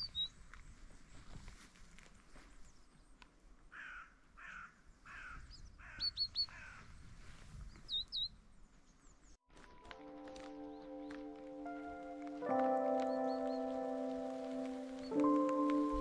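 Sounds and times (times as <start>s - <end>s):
songbird chirps: 0.0s - 1.3s, 4.8s - 16.0s.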